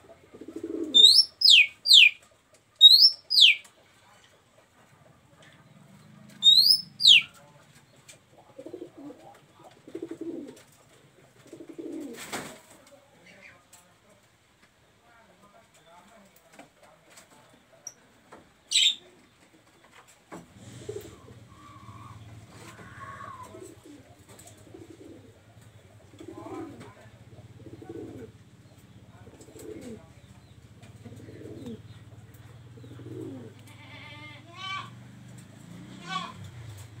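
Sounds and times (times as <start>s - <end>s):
dove cooing: 0.0s - 2.2s, 2.8s - 3.7s, 5.9s - 7.6s, 8.3s - 12.2s, 20.6s - 33.7s
bird chattering calls: 0.6s - 2.2s, 2.8s - 3.6s, 6.4s - 7.3s, 18.7s - 19.0s
bird sharp whistle: 2.8s - 3.6s, 6.5s - 7.3s.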